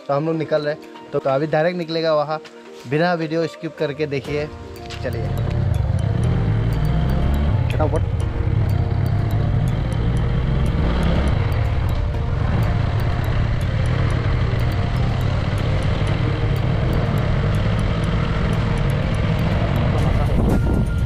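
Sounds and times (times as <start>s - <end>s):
wind and road noise: 4.3s - 21.0s
motorcycle engine running: 5.0s - 21.0s.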